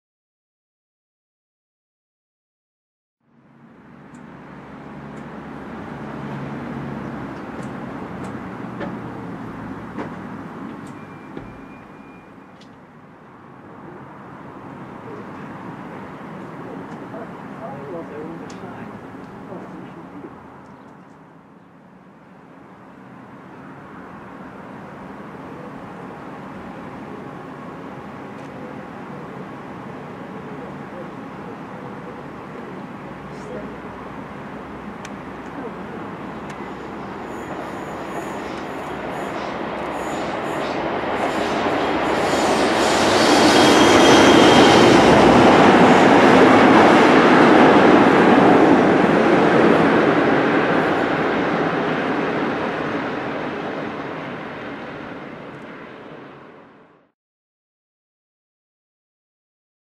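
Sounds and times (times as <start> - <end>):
diesel locomotive engine rumble: 3.5 - 56.5
faint thin whistle: 10.9 - 12.4
faint high whistle: 10.9 - 12.5, 36.6 - 44.5
train wheel rumble: 32.6 - 56.1.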